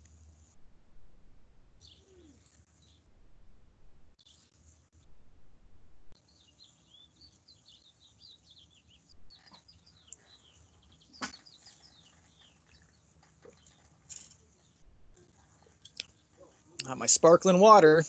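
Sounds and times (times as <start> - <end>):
songbirds chirping: 1.7 - 3.2, 4.1 - 4.9, 6.0 - 18.0.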